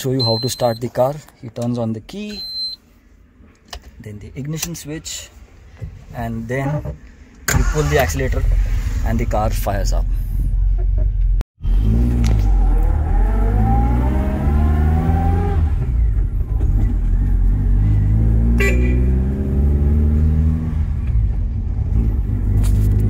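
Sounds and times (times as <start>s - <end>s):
petrol engine revving: 11.6s - 23.0s.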